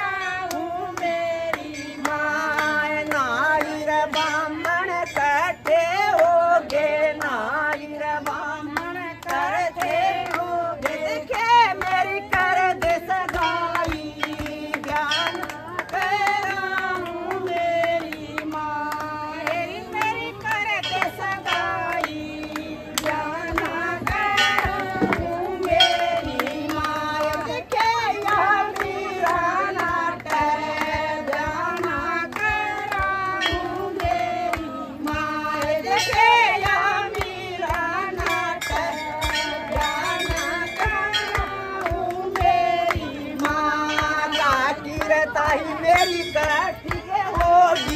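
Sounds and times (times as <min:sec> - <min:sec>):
hand claps keeping time: 0:00.0 - 0:47.9
women singing devotional song: 0:00.0 - 0:47.9.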